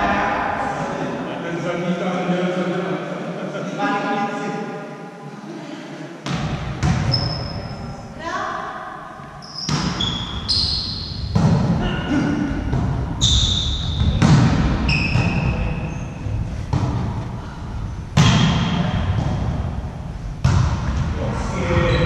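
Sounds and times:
volleyball hits echoing: 6.2s - 7.4s, 9.6s - 15.7s, 16.7s - 17.3s, 18.1s - 21.2s
sneakers squeaking on floor: 6.8s - 7.9s, 9.4s - 11.6s, 13.1s - 16.8s.

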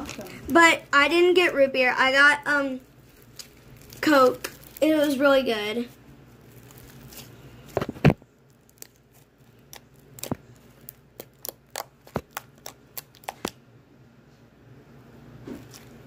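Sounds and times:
slime clicking and popping: 8.6s - 13.6s.

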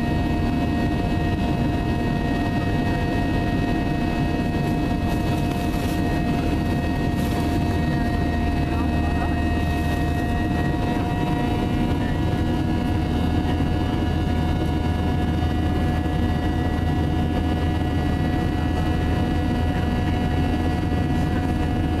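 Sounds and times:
jet engines rumbling and whining: 0.0s - 22.0s.

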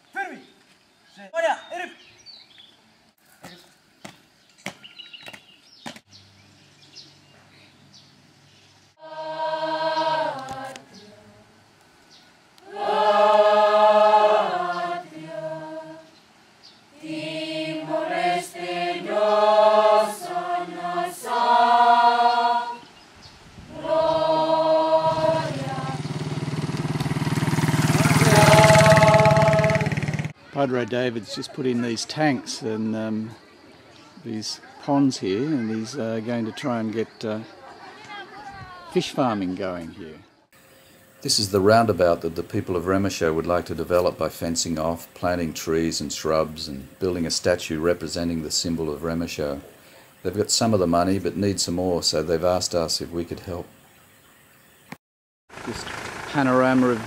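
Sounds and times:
students singing in unison: 9.0s - 11.6s, 12.6s - 16.2s, 16.9s - 23.0s, 23.7s - 26.7s, 27.9s - 30.2s.

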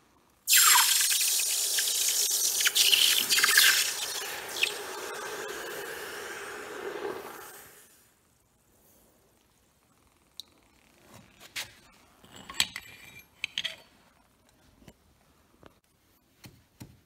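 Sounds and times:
hot metal hissing in water: 0.5s - 8.0s.

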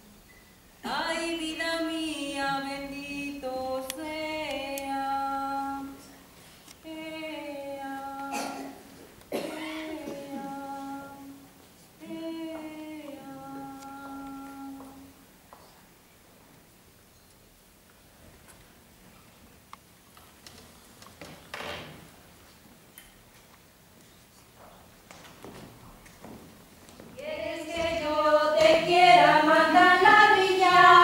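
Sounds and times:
woman singing a lullaby: 0.8s - 6.1s, 9.7s - 15.2s.

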